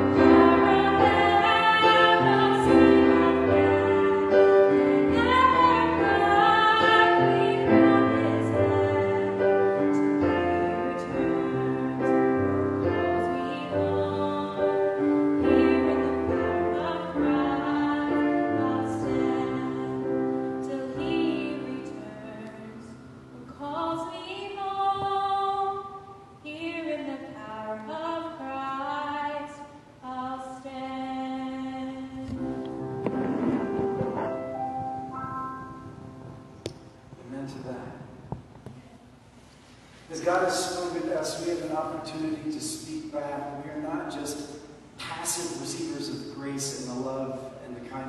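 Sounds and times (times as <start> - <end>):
piano accompaniment: 0.0 - 24.1, 30.7 - 38.6, 40.1 - 48.0.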